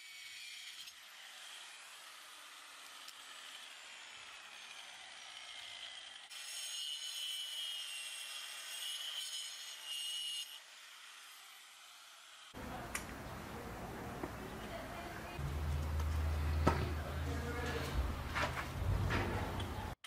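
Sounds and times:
angle grinder whining: 0.0s - 12.8s.

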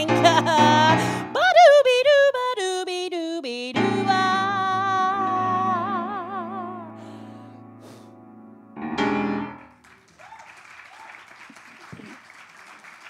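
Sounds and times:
woman singing: 0.0s - 7.3s.

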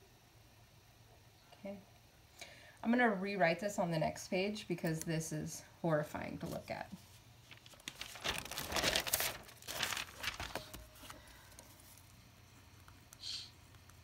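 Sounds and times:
paper page rustling: 6.4s - 12.2s.

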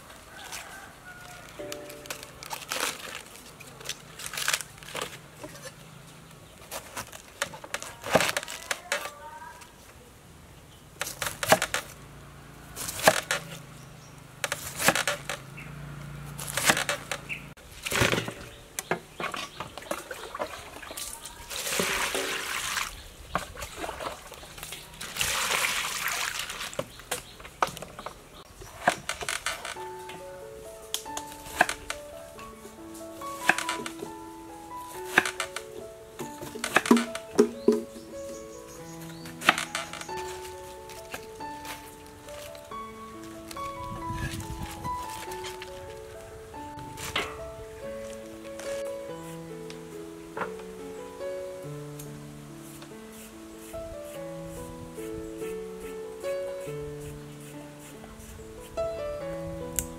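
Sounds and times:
cabbage leaves snapping: 0.3s - 5.7s, 6.6s - 9.3s, 11.0s - 12.0s, 12.8s - 13.7s, 14.4s - 15.5s, 16.3s - 18.4s, 30.8s - 34.2s, 34.8s - 38.2s, 39.0s - 49.0s
knife cutting cabbage: 0.4s - 5.8s, 6.6s - 9.2s, 11.0s - 12.0s, 12.8s - 13.6s, 14.4s - 15.5s, 16.3s - 18.4s, 31.1s - 32.1s, 33.2s - 34.2s, 34.8s - 37.9s, 52.7s - 58.7s
water splashing in a basin: 19.6s - 27.0s.

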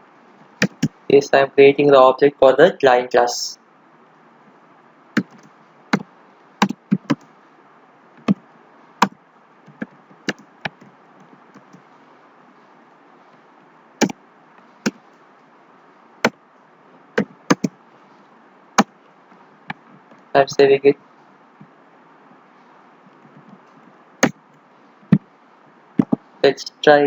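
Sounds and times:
faint steady hiss: 0.0s - 27.0s
keyboard keystrokes clacking: 5.2s - 5.5s, 17.2s - 17.7s.

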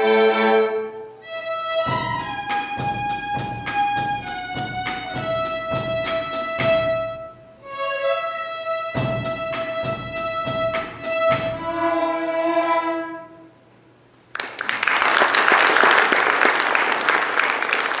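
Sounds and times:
string orchestra chords: 0.0s - 13.8s
audience applause: 14.3s - 18.0s.

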